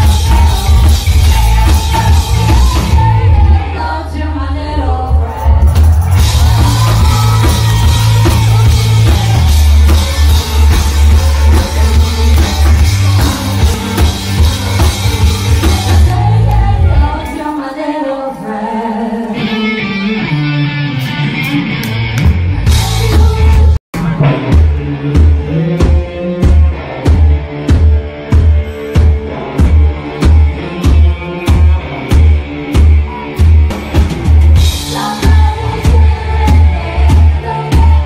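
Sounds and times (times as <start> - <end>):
live rock band playing: 0.0 - 3.7, 5.2 - 17.1, 19.4 - 38.0
woman singing: 0.0 - 19.6, 22.7 - 23.8, 34.7 - 38.0.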